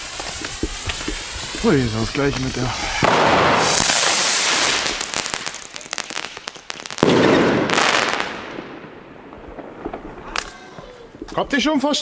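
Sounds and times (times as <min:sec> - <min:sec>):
firework rocket hiss: 0:00.0 - 0:08.8
firework crackling: 0:00.0 - 0:11.6.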